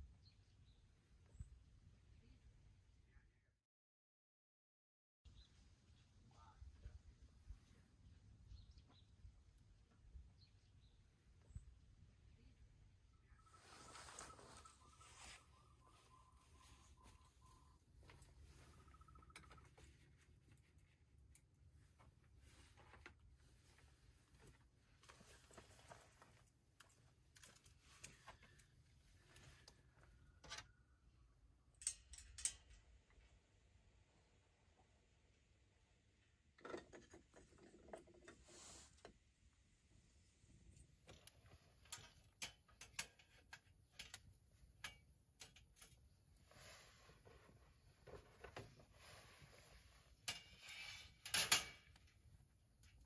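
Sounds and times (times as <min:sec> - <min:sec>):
camping gear rustling: 0:13.4 - 0:30.4, 0:40.9 - 0:53.0
metal grate clattering and scraping: 0:50.2 - 0:52.0.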